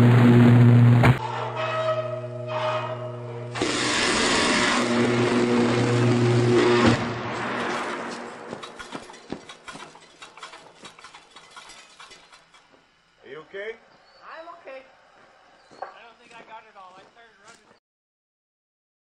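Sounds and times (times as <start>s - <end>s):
electric arc buzzing roar: 0.0s - 14.9s
scattered electric crackles: 3.5s - 12.5s.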